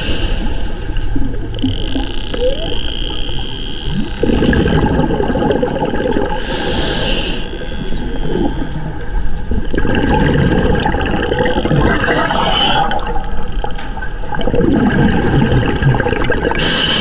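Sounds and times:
water and bubble rumble: 0.0 - 6.5, 7.4 - 17.0
dolphins whistling underwater: 0.0 - 13.3, 14.6 - 17.0
short hissing burst: 6.4 - 7.5.

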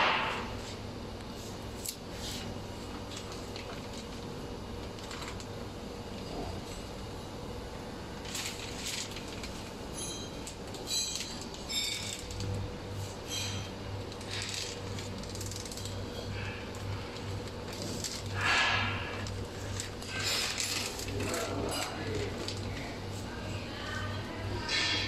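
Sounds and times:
plastic film crinkling: 2.9 - 5.6, 8.2 - 9.8, 14.0 - 23.4.

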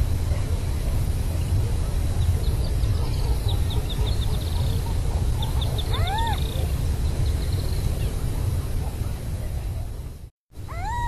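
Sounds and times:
bird call rising and falling: 5.7 - 6.6, 10.7 - 11.0.

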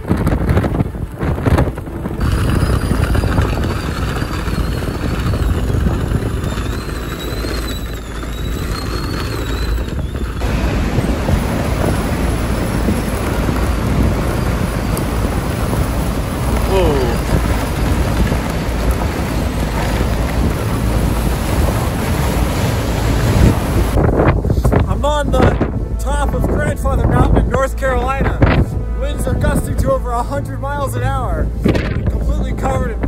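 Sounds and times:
wind gusting over microphone: 0.0 - 33.0
faint wavering high whistle: 2.3 - 10.4.

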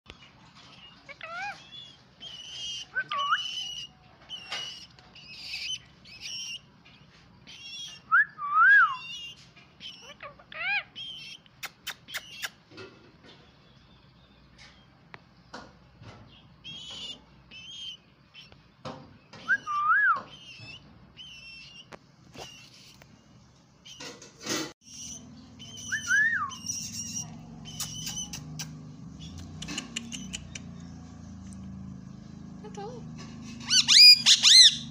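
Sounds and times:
parakeet chirping and whistling: 1.1 - 6.7, 19.4 - 23.0, 24.8 - 30.6, 33.6 - 34.9
sharp clicks: 27.7 - 31.6.

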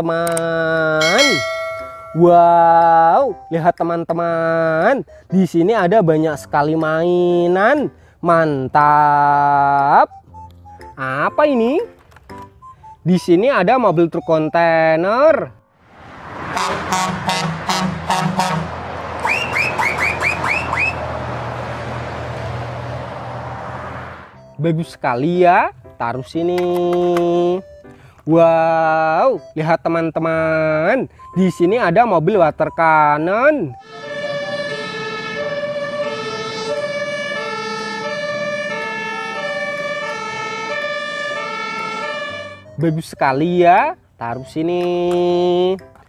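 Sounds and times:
truck engine and tyre drone: 15.6 - 24.6, 33.5 - 43.3
two-tone emergency siren: 16.4 - 21.1, 33.6 - 43.2
truck horn blasts: 16.5 - 21.1, 33.8 - 42.9
rising whistle-like chirps: 19.2 - 21.0.

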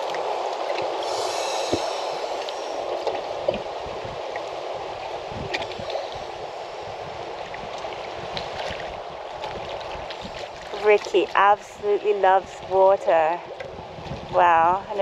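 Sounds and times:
water washing: 0.0 - 13.5
small knocks and splashes: 7.6 - 11.4.

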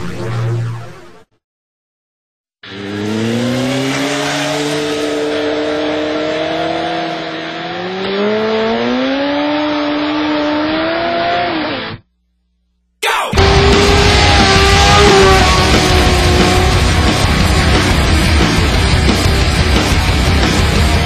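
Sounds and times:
motorcycle engine revving high: 2.6 - 12.0, 13.3 - 21.0
loud heavy music: 13.0 - 21.0.

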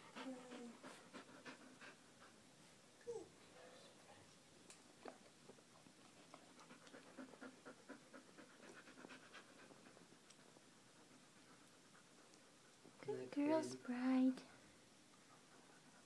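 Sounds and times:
small dog panting: 0.0 - 2.5, 5.8 - 13.3, 15.0 - 16.0.

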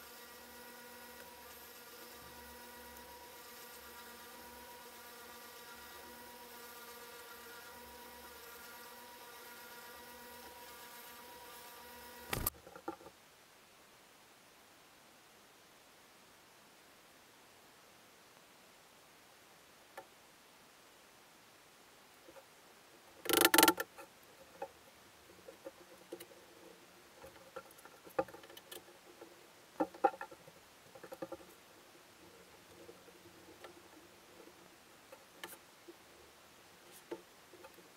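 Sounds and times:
spindle sander buzzing hum: 0.0 - 12.5.

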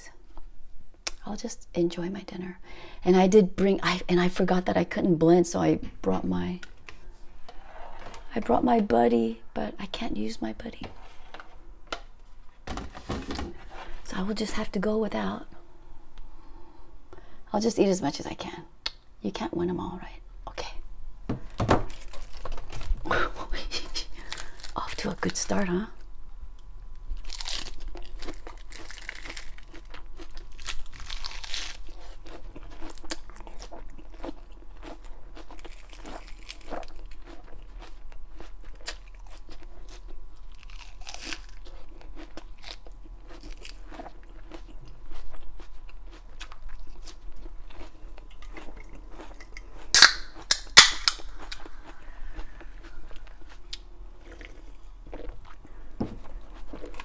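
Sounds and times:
lettuce crunching while chewed: 23.8 - 25.4, 27.1 - 57.0
lettuce leaves tearing: 27.2 - 32.2, 40.5 - 41.7.

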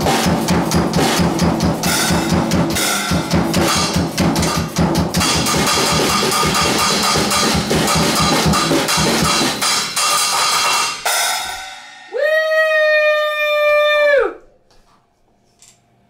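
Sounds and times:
cymbal ringing: 0.0 - 12.2
drum kit playing: 0.0 - 12.2
voice holding high note: 12.1 - 14.5.

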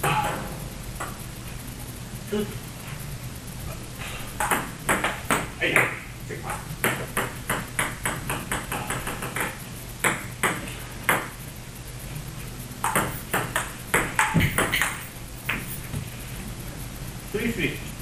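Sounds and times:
table tennis ball hits: 4.4 - 6.0, 6.8 - 11.4, 12.8 - 15.8.

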